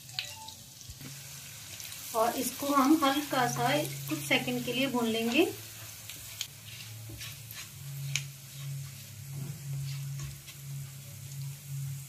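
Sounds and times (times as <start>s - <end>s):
seeds sizzling in hot oil: 0.0s - 12.0s
low hum: 6.5s - 12.0s.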